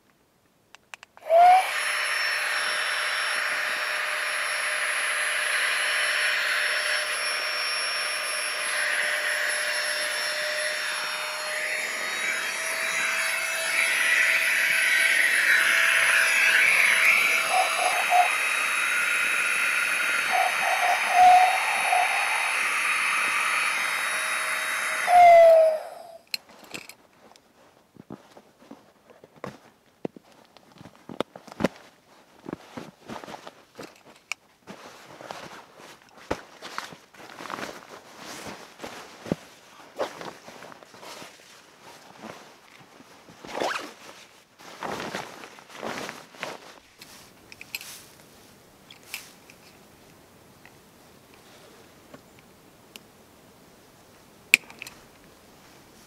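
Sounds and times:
electric air pump whirring: 0:01.2 - 0:26.3.

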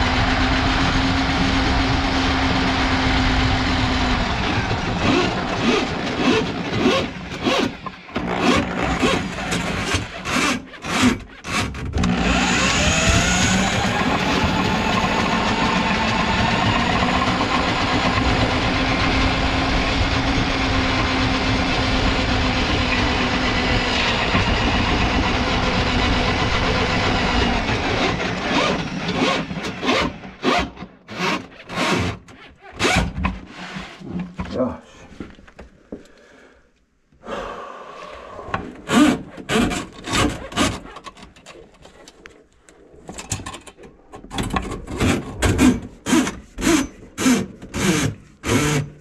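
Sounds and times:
drain auger motor running: 0:00.0 - 0:30.4.

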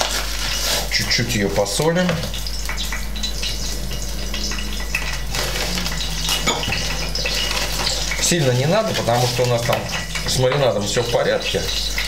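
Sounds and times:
paper pack rustling: 0:00.0 - 0:01.3, 0:05.2 - 0:11.8
frying pan sizzling: 0:00.0 - 0:12.0
low hum: 0:01.6 - 0:11.1.

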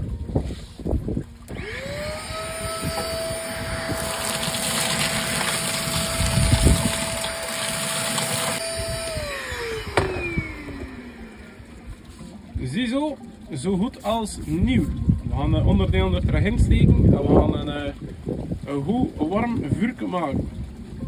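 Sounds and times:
vacuum cleaner motor whine: 0:01.5 - 0:12.4.

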